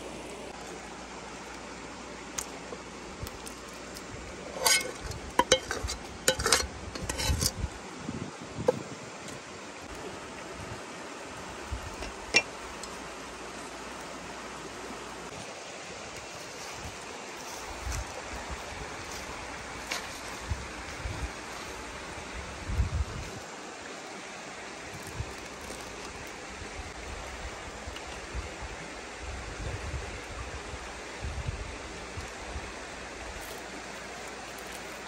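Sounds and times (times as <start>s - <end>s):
steady outdoor hiss: 0.0s - 35.0s
metal spoon clinking on pot: 4.6s - 7.5s.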